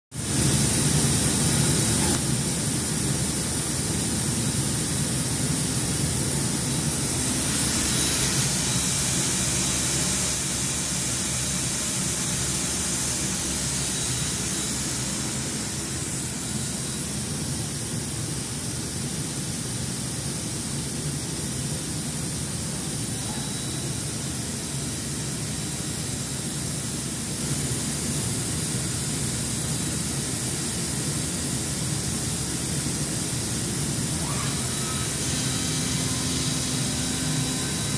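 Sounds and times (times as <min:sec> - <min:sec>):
cutting machine rushing noise: 0:06.6 - 0:16.7, 0:34.2 - 0:37.9.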